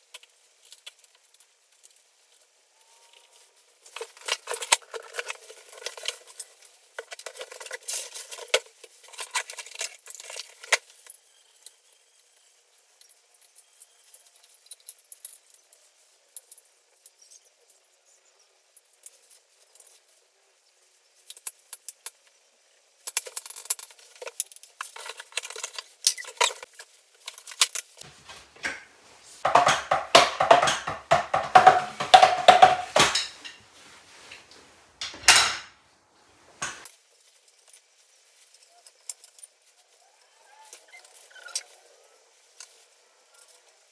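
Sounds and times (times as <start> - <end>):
taps and thuds: 28.6 - 33.5
cardboard boxes clattering: 29.4 - 33.5.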